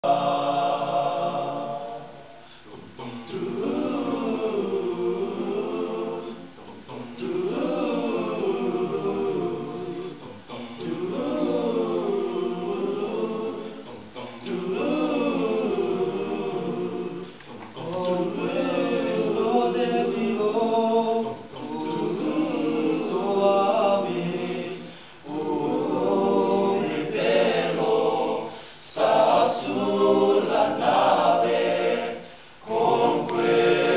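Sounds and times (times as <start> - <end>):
boys' choir singing: 0.0 - 33.9.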